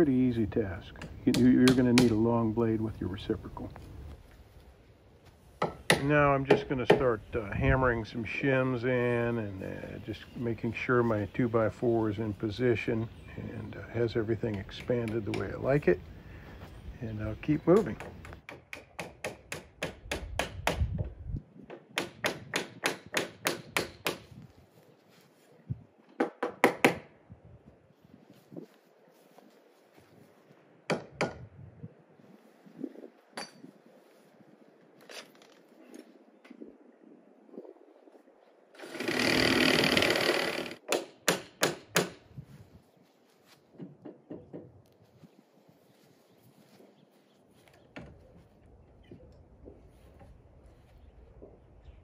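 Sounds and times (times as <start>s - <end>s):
power tool running: 38.8s - 40.8s.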